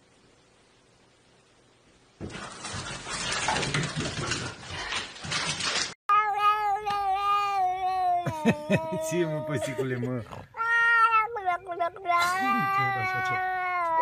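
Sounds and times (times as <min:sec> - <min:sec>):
cat meowing: 0:06.1 - 0:14.0.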